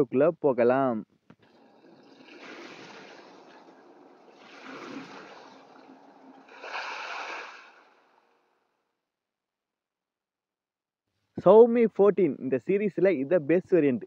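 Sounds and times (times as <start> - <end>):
water gushing and splashing: 1.4 - 8.4.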